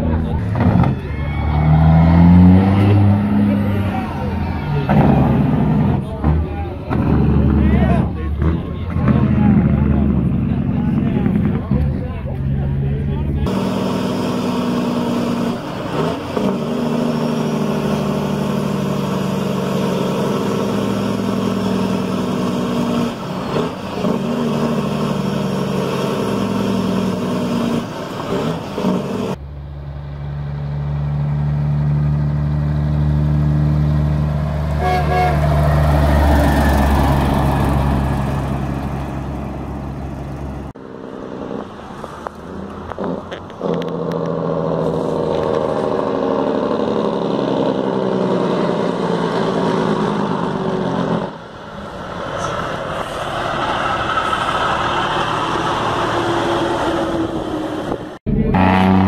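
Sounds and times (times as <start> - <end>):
deep truck engine drone: 0.0 - 59.0
truck engine drone: 0.0 - 59.0
horn-like tone: 34.8 - 35.6.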